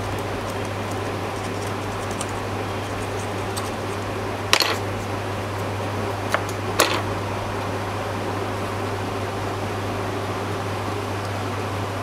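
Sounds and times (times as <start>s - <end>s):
handling clicks and crinkles: 0.0s - 7.1s
hum and fan noise: 0.0s - 12.0s.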